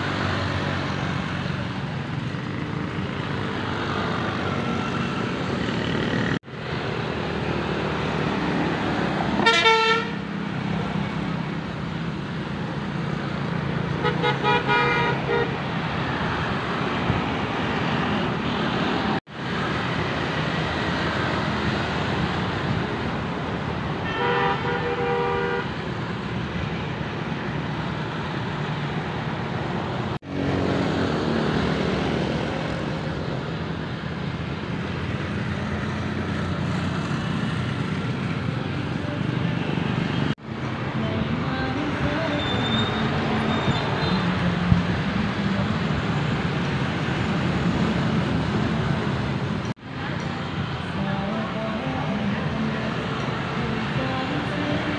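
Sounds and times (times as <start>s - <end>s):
road traffic passing: 0.0s - 54.9s
vehicle horn tooting: 9.4s - 10.2s, 14.0s - 15.5s, 24.0s - 25.7s.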